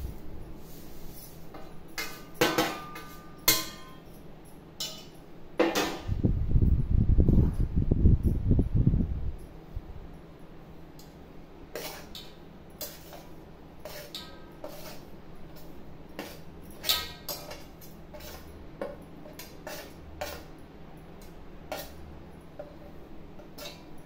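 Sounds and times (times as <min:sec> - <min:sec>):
spoon scraping on steel plate: 0:11.7 - 0:18.6, 0:19.2 - 0:20.5, 0:21.2 - 0:22.0, 0:23.4 - 0:24.0.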